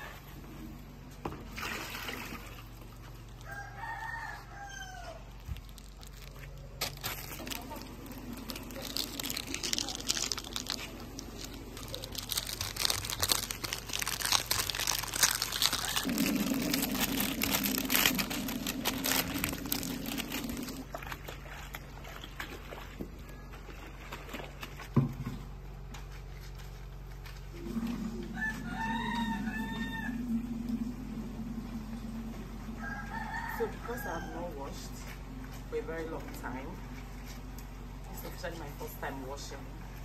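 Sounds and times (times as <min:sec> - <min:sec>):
clothes splashing in soapy water: 0:01.4 - 0:03.2
rooster crowing: 0:03.4 - 0:05.4, 0:27.6 - 0:34.8
detergent powder pouring: 0:07.1 - 0:21.0.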